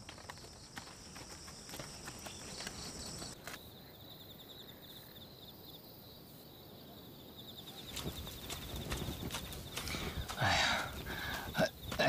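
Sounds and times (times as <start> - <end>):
sharp clops like hooves: 0.0 - 3.6, 7.8 - 12.0
crickets chirping: 0.0 - 12.0.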